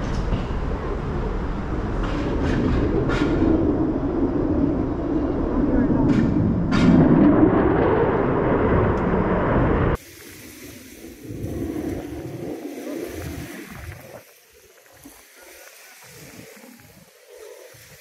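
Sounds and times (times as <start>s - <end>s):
low rumble: 0.0s - 10.0s
jet engine roar: 0.0s - 14.6s.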